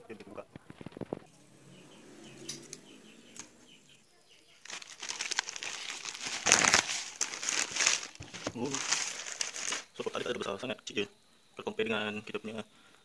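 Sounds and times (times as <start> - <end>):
plastic mailer bag crinkling: 4.5 - 10.1.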